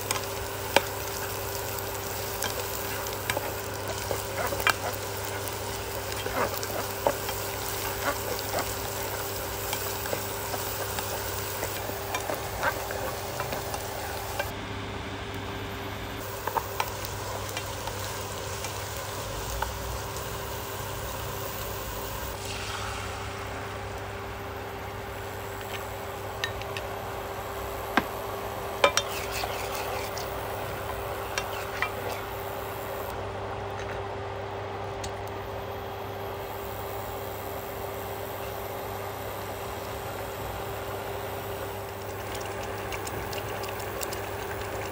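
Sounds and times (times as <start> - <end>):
vegetables sizzling in oil: 0.0 - 14.5, 16.2 - 33.2, 35.4 - 44.9
plastic spatula scraping pan: 28.9 - 30.3.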